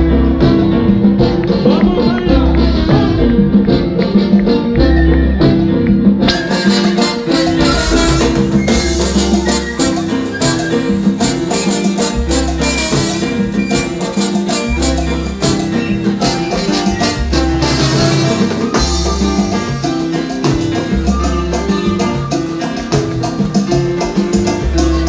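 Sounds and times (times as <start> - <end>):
low bass notes: 0.0 - 6.3, 7.2 - 10.2
congas and timbales: 0.0 - 25.0
salsa band playing: 0.0 - 25.0.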